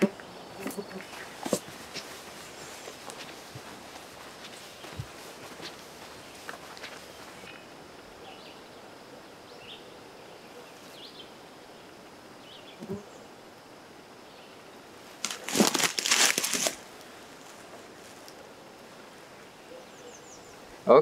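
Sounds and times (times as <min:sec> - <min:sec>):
loud crackly rustling: 0:00.7 - 0:07.5, 0:15.1 - 0:18.3
faint bird chirps: 0:05.9 - 0:13.3, 0:19.4 - 0:20.7.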